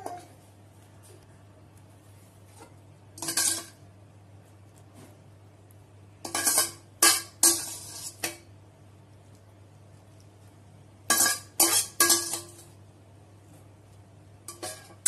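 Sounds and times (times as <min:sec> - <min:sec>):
metal spoon scraping metal pan: 0:06.2 - 0:08.5, 0:11.1 - 0:12.6, 0:14.5 - 0:15.0.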